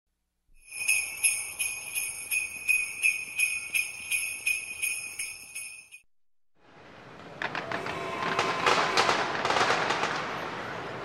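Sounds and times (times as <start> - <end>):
sleigh bells jingling: 0.6 - 6.1.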